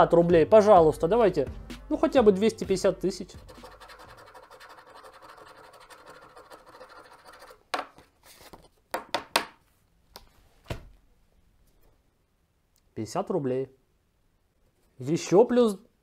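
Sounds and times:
scratching lottery ticket coating: 0:03.5 - 0:07.6.

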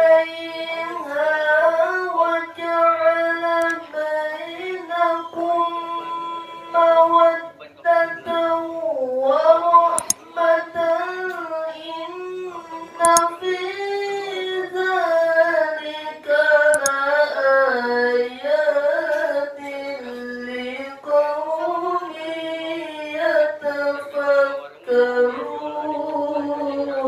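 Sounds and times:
person reciting melodically: 0:00.0 - 0:27.0
microphone clicks: 0:10.0 - 0:10.2, 0:13.0 - 0:13.2, 0:16.7 - 0:17.0.

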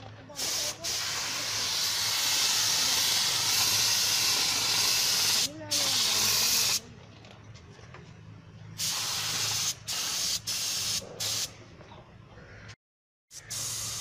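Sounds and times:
spray paint gun hissing: 0:00.4 - 0:06.8, 0:08.8 - 0:11.5, 0:13.3 - 0:14.0.

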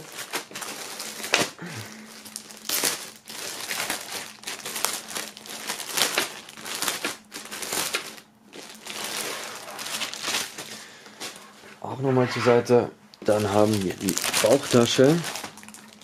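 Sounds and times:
plastic bag crinkling: 0:00.0 - 0:11.6, 0:13.1 - 0:16.0.

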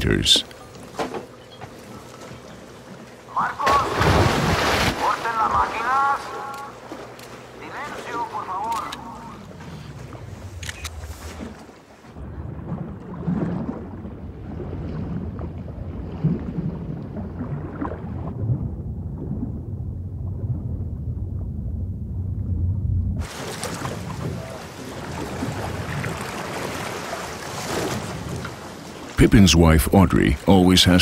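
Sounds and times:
sea waves: 0:00.0 - 0:19.6, 0:23.2 - 0:31.0
wind: 0:00.0 - 0:31.0
underwater water rumble: 0:09.1 - 0:28.8.

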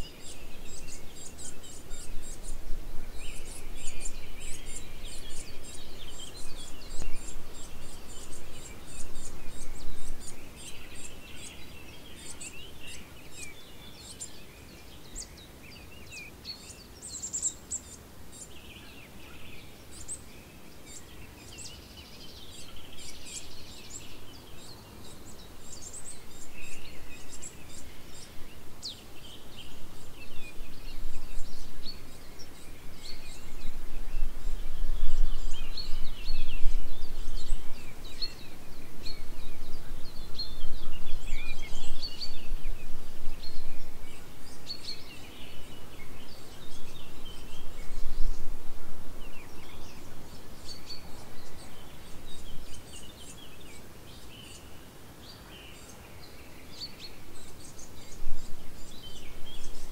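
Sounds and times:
wind on microphone: 0:00.0 - 0:11.4, 0:29.4 - 0:53.0, 0:57.3 - 0:59.9
songbirds chirping: 0:00.0 - 0:59.9.

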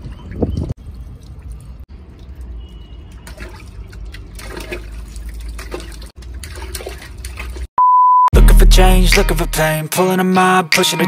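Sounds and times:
water splashing into plastic bucket: 0:03.2 - 0:07.7.

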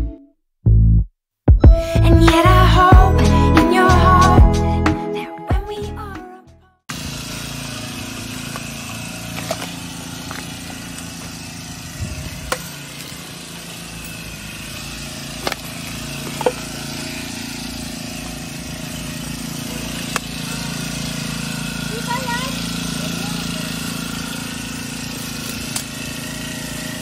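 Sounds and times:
brush cutter engine running: 0:06.9 - 0:27.0.

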